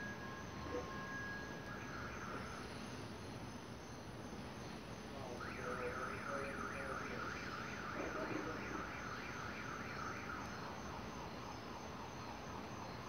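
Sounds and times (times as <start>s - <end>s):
electronic alarm chirping: 0.0s - 3.0s.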